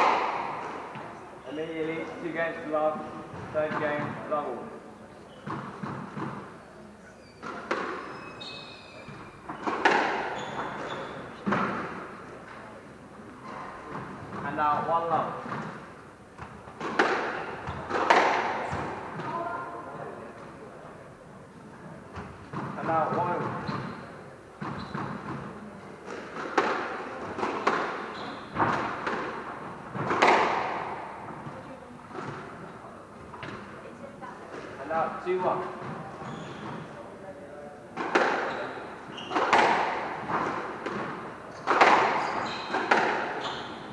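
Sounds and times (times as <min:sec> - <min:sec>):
squash ball hitting walls: 0:00.0 - 0:01.1, 0:07.4 - 0:08.1, 0:09.1 - 0:12.1, 0:16.4 - 0:19.6, 0:24.6 - 0:31.6, 0:38.0 - 0:43.9
shoes squeaking on wooden floor: 0:05.2 - 0:11.7, 0:13.4 - 0:14.6, 0:22.2 - 0:25.4, 0:27.3 - 0:28.8, 0:35.4 - 0:37.0, 0:38.2 - 0:43.9.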